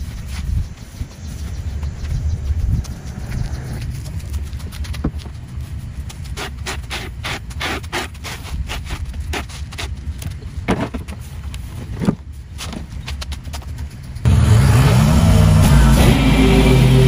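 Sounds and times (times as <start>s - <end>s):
rake scraping on concrete: 2.4s - 12.0s.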